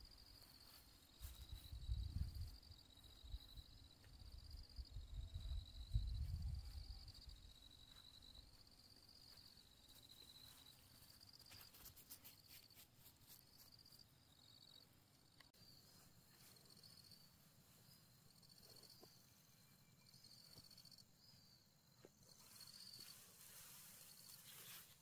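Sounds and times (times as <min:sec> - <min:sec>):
insects chirping in high trills: 0:00.0 - 0:25.0
soft crackling rustle: 0:00.2 - 0:01.8, 0:07.8 - 0:14.0, 0:22.2 - 0:25.0.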